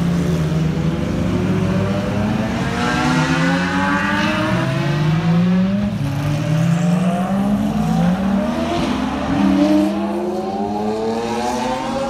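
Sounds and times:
car engines accelerating: 0.0 - 12.0.

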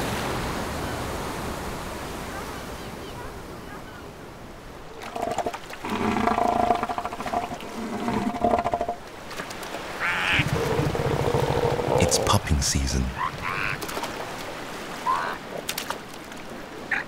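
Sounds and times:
elephant seals calling: 5.0 - 9.1, 9.9 - 12.4, 13.1 - 13.9.

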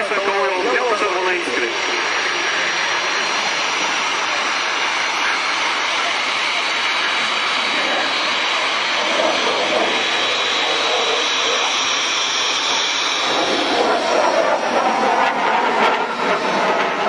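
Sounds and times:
jet engine rushing: 0.0 - 17.0.

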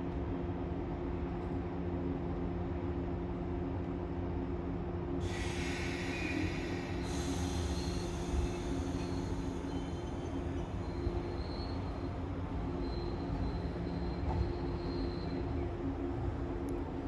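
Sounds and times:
train electrical hum: 0.0 - 17.0
hiss: 5.2 - 10.0
high-pitched train squeals: 5.2 - 15.9.

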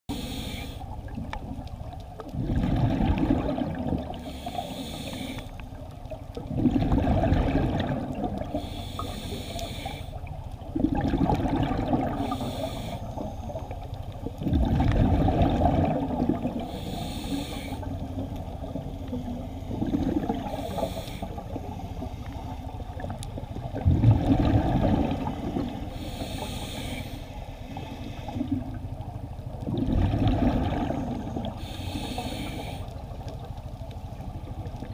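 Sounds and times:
regulator inhale hiss: 0.1 - 1.0, 4.1 - 5.8, 8.4 - 10.3, 12.1 - 13.9, 16.5 - 23.0, 25.2 - 28.8, 31.0 - 33.4
exhaled bubbles rushing: 1.0 - 4.3, 6.4 - 8.6, 10.7 - 12.5, 14.2 - 16.7, 17.8 - 21.7, 22.9 - 25.9, 29.6 - 31.6.

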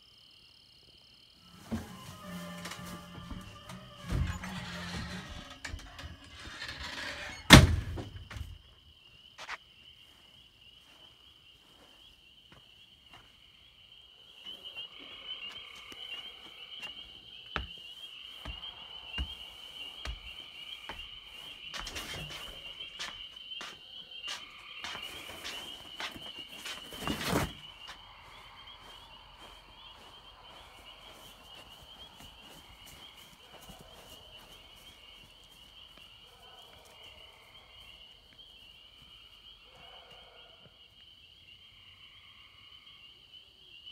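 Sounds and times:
night chorus trilling: 1.3 - 43.9
door shutting: 1.5 - 8.6.

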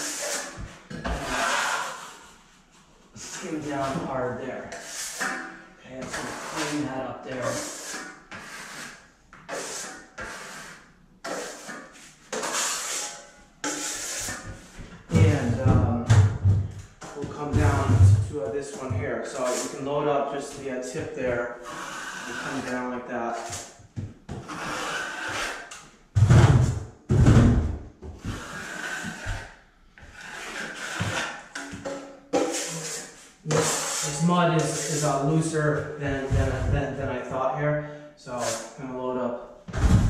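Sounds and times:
trowel scraping joint compound: 0.0 - 2.5, 3.1 - 15.7, 17.0 - 26.4, 28.2 - 36.8, 38.4 - 38.8.

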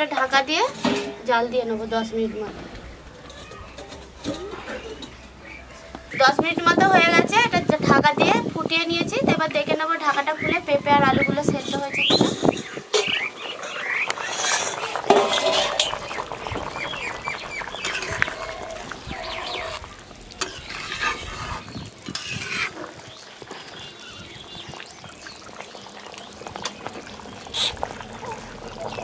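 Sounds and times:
metal lid clank: 0.7 - 1.2, 15.1 - 16.2
curry bubbling and sizzling: 2.8 - 29.0
spatula scraping iron pan: 11.6 - 23.7.

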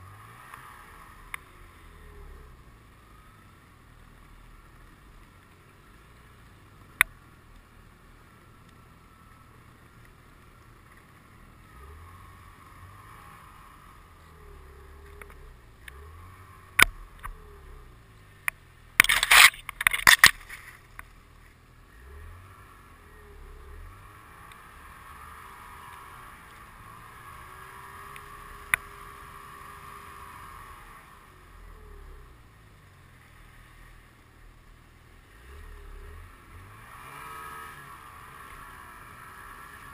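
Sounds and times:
snowmobile engine revving: 0.0 - 5.2, 10.9 - 20.9, 21.8 - 34.0, 35.2 - 39.9
hits and scraping through snow: 19.0 - 21.0.

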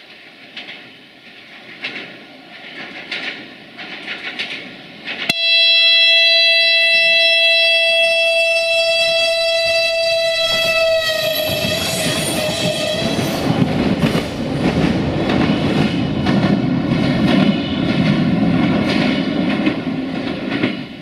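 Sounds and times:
track clicking and rattling: 0.1 - 5.3, 11.3 - 21.0
train horn blast: 5.3 - 13.5
train rushing past: 7.4 - 21.0.

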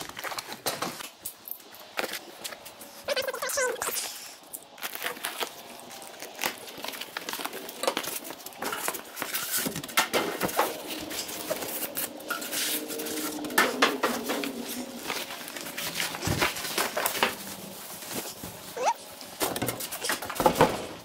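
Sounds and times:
cardboard scraping and rustling: 4.8 - 21.0.

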